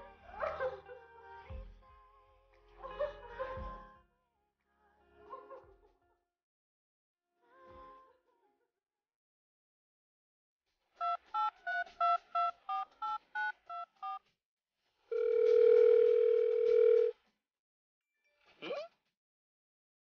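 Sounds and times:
keypad dialing beeps: 0:11.0 - 0:14.2, 0:15.2 - 0:17.1
phone ringback tone: 0:15.1 - 0:17.1.

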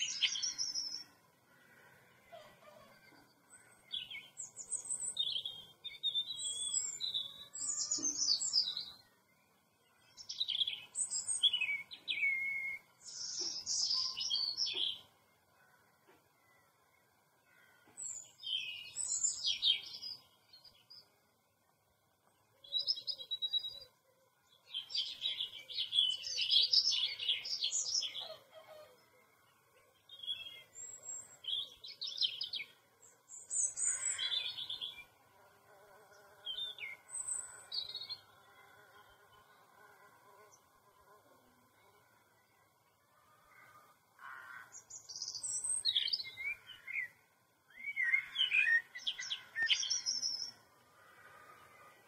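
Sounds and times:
small birds chirping: 0:00.0 - 0:40.9, 0:41.7 - 0:52.0.

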